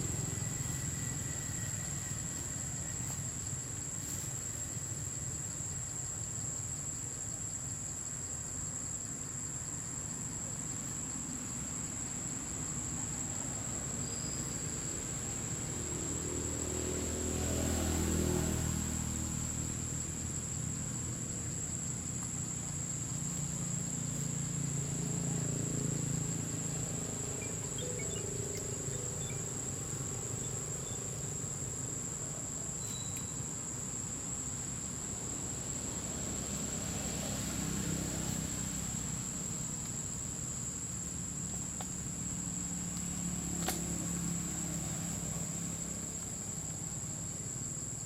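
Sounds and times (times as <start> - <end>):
high-pitched insect drone: 0.0 - 7.6, 23.2 - 35.0.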